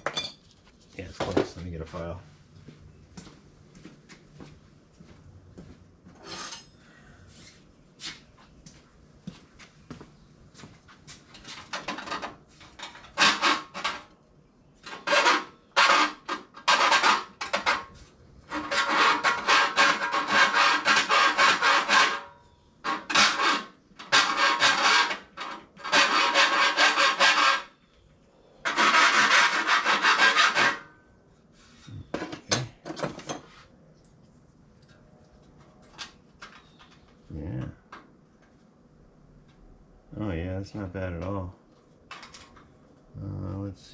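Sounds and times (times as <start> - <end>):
hand file rasping on steel: 14.9 - 17.7, 18.5 - 27.8, 28.6 - 30.9.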